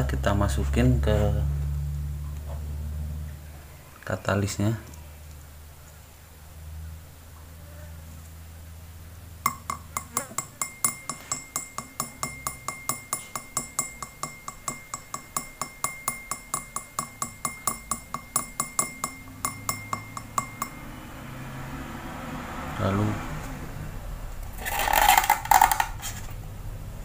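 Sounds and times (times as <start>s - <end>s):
skewer tapping glass rim: 9.4s - 20.9s.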